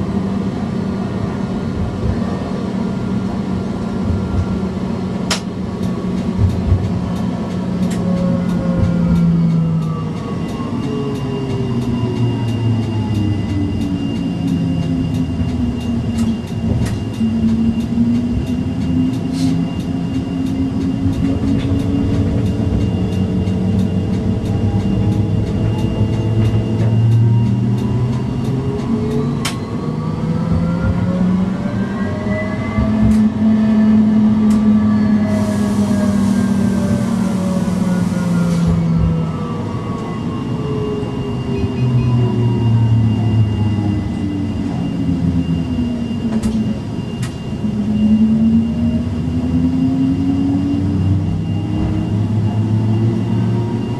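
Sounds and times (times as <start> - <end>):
tram motor whine: 0.0 - 53.9
hiss: 35.3 - 37.9.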